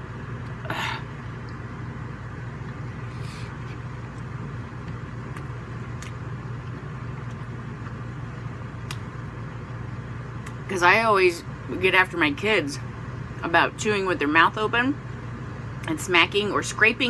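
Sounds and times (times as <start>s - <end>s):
air conditioner humming: 0.0s - 17.0s.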